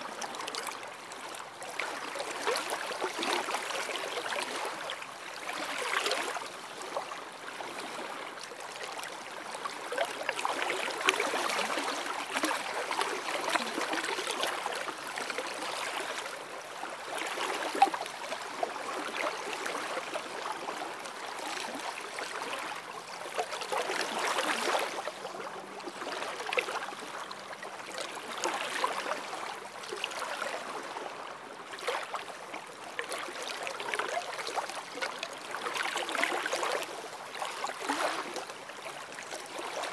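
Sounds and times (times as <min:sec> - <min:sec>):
small waves lapping on shore: 0:00.0 - 0:39.9.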